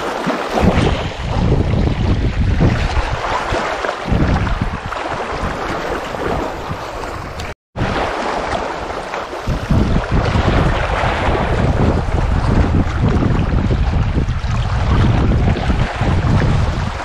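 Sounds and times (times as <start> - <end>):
waves lapping on rocks: 0.0 - 17.0
wind buffeting microphone: 0.0 - 17.0.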